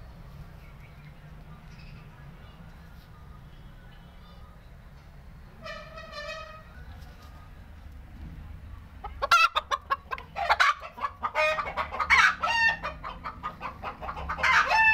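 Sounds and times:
hen cackling: 9.0s - 14.9s.

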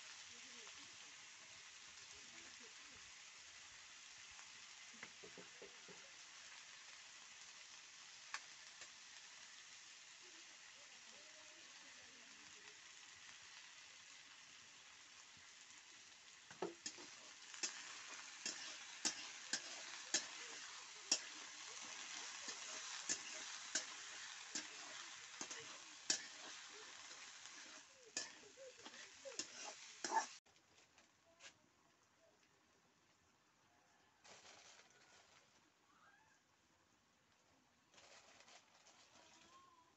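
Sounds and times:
food sizzling in a wok: 0.0s - 30.5s
spatula scraping a pan: 16.6s - 30.4s.

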